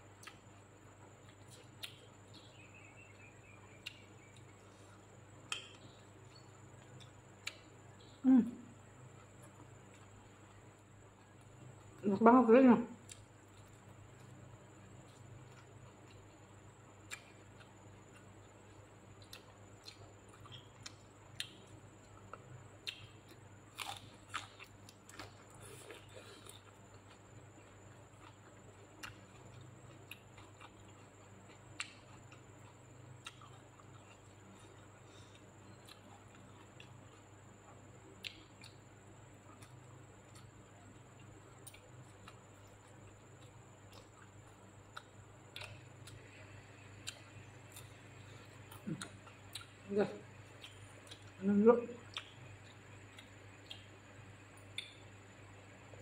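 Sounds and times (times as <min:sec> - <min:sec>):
crunchy chewing: 0:00.0 - 0:12.3, 0:13.0 - 0:56.0
low steady hum: 0:00.0 - 0:56.0
mouth smacks and clicks eating: 0:38.2 - 0:38.8, 0:39.5 - 0:46.3, 0:46.9 - 0:51.4, 0:52.0 - 0:55.1.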